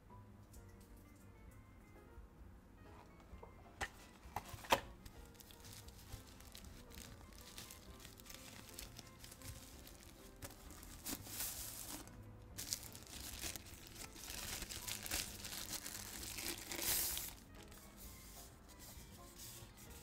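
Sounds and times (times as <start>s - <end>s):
plastic bag crinkling: 5.1s - 17.8s.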